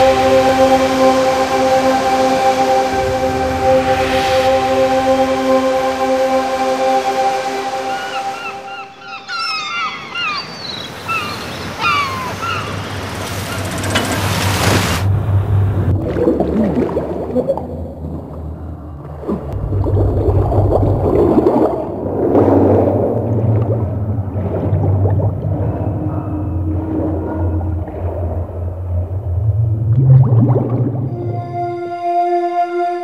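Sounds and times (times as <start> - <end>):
low rumble: 0.0 - 7.9, 13.6 - 31.6
sea waves washing: 0.0 - 31.6
seagull cries: 7.7 - 14.0
underwater bubbling and gurgling: 15.0 - 31.4.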